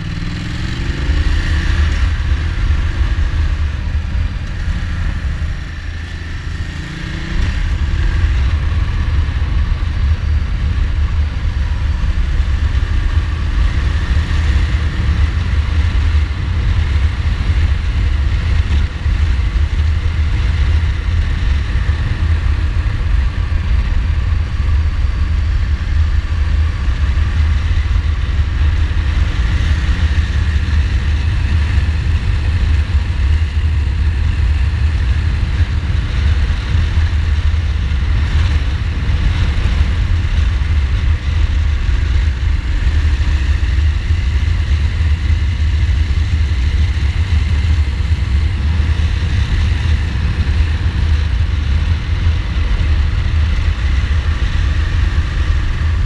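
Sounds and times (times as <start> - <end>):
motorcycle engine running: 0.0 - 56.0
wind rumble on microphone: 0.0 - 56.0.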